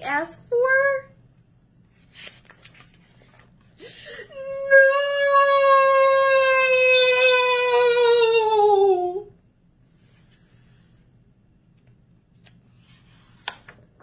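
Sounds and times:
faint taps of book page: 13.4 - 13.8.

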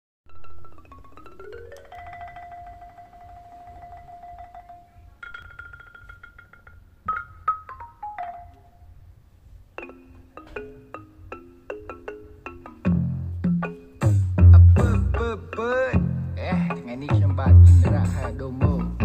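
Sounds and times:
marimba-like mallet melody: 0.3 - 9.0, 9.8 - 19.0.

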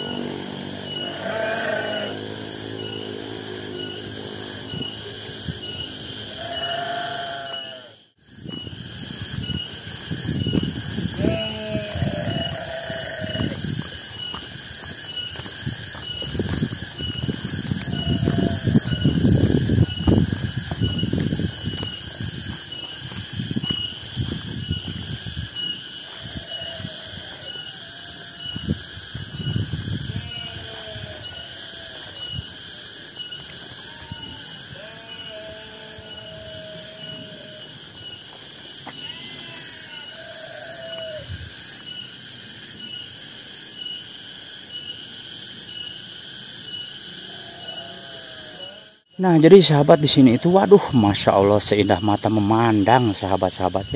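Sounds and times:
cicadas droning: 0.0 - 53.9
low thumps and rumbles: 16.0 - 25.0.

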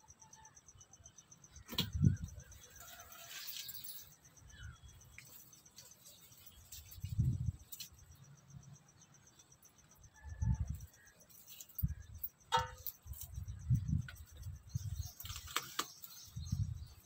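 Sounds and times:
insect chirring: 0.0 - 17.0
rustles among plants: 1.6 - 8.3, 10.7 - 17.0
wind buffeting microphone: 13.0 - 15.1, 16.2 - 17.0.

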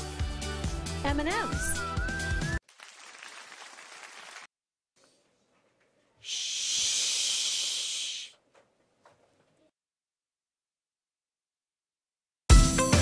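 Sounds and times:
faint hiss: 6.2 - 8.4
person shushing: 6.2 - 8.4.

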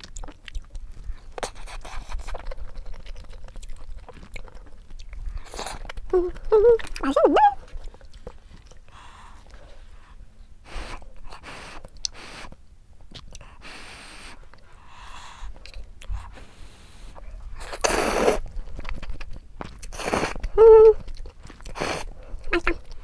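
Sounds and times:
quiet chewing: 0.0 - 23.0
noodle slurping: 17.6 - 18.4, 19.9 - 20.4.

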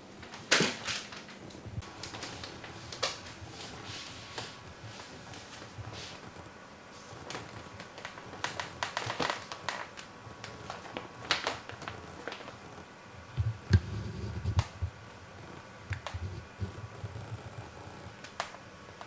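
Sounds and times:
plastic sheeting crinkling: 0.0 - 19.0
soft low thumps: 13.3 - 15.0.

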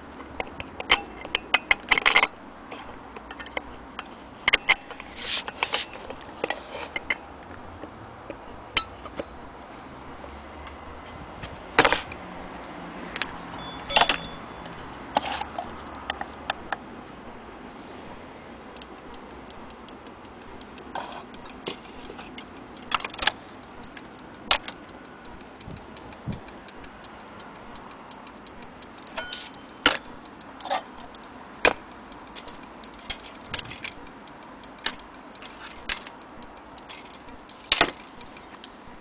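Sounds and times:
metallic clinks and knocks: 0.5 - 2.4, 13.2 - 15.8, 29.1 - 31.0
clock ticking: 12.1 - 17.5, 18.1 - 39.0.

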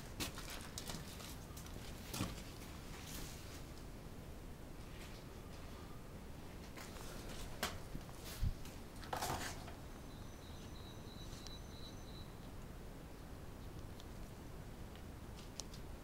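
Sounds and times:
high steady whistling tone: 9.8 - 12.5.

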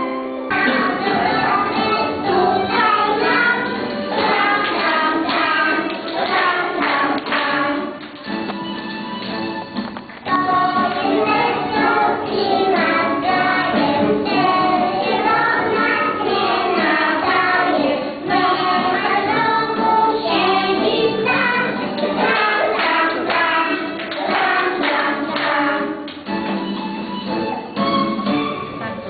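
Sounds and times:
accompanying music: 0.0 - 29.0
children singing: 0.5 - 8.0, 10.2 - 26.1.

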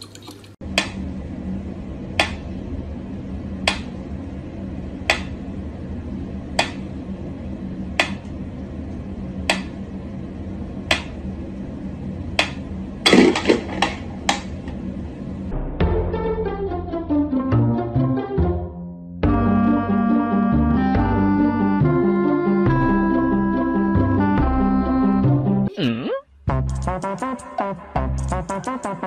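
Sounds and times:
low hum: 0.6 - 17.2, 19.1 - 25.7.

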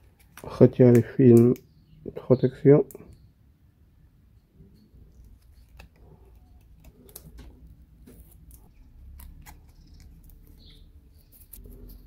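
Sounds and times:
plastic film peeling crackle: 5.2 - 12.0.

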